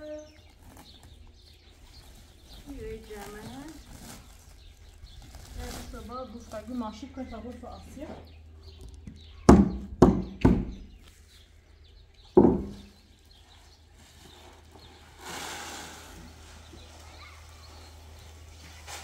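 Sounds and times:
heavy thuds: 0:12.4 - 0:12.9
short hiss of noise: 0:15.2 - 0:16.4.

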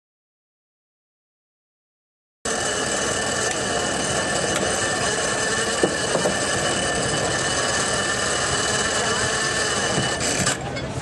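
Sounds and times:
flywheel machine running: 0:02.5 - 0:11.0.

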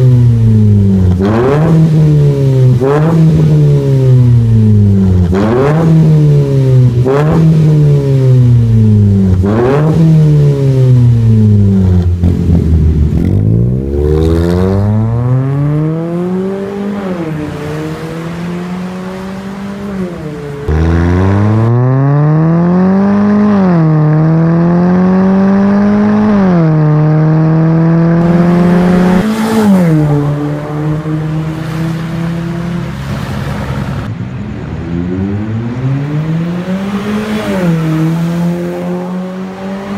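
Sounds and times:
car accelerating through gears: 0:00.0 - 0:04.4, 0:09.3 - 0:33.3
car engine revving: 0:00.0 - 0:34.1, 0:34.8 - 0:39.9.

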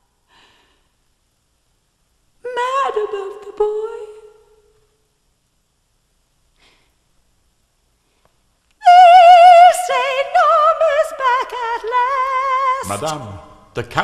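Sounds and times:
high operatic voice singing: 0:08.8 - 0:13.5.

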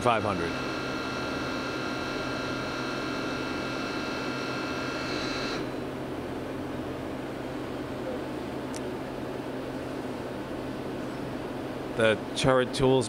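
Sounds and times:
lathe humming: 0:00.0 - 0:06.0
machine tool spinning whine: 0:00.0 - 0:06.0.

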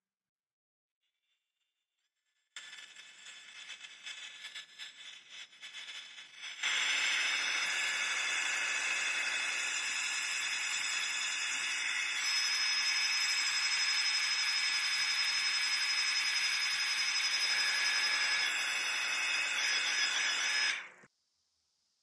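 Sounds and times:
hot-air gun blowing: 0:06.2 - 0:15.4.

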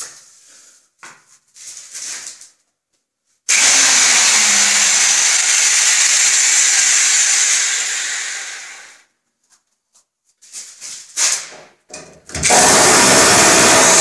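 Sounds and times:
hammer drill running: 0:03.5 - 0:09.0, 0:12.4 - 0:14.0.

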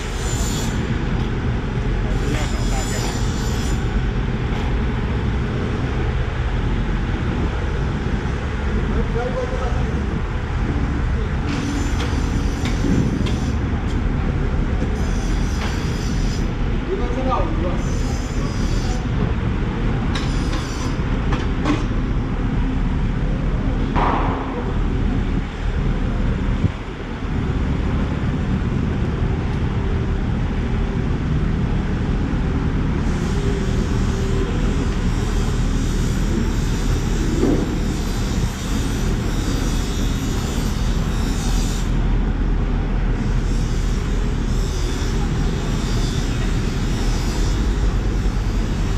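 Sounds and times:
low engine-like rumble: 0:00.0 - 0:15.4.

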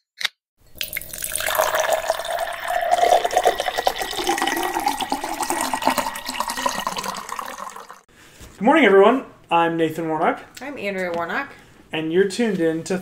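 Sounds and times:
drink pouring into glass: 0:00.6 - 0:08.0.

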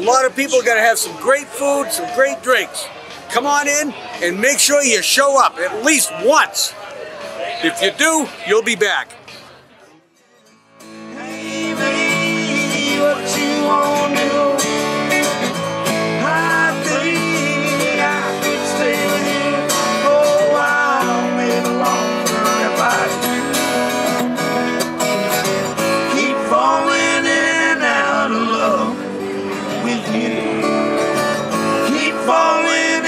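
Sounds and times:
strummed acoustic guitar: 0:00.0 - 0:09.6, 0:10.2 - 0:33.0
electric guitar: 0:10.8 - 0:33.0
man singing: 0:11.0 - 0:24.3, 0:26.0 - 0:33.0.

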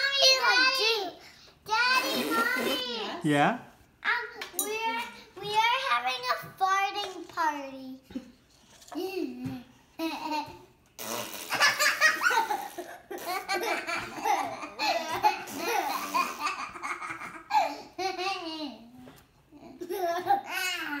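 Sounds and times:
woman and children laughing: 0:11.6 - 0:17.7.

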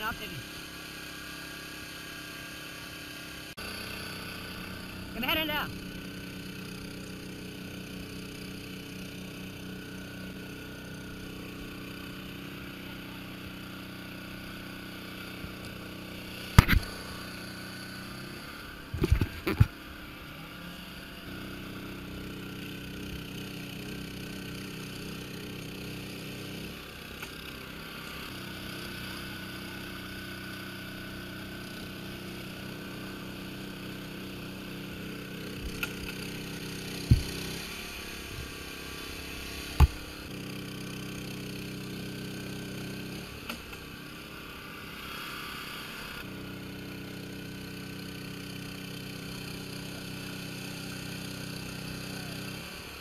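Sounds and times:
motor humming: 0:02.4 - 0:43.9.

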